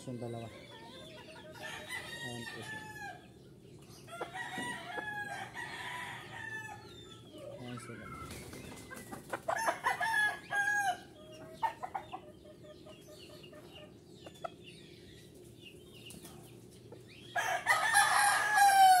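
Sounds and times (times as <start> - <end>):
roosters crowing: 0.0 - 3.4, 4.0 - 7.2, 9.4 - 11.2, 17.4 - 19.0.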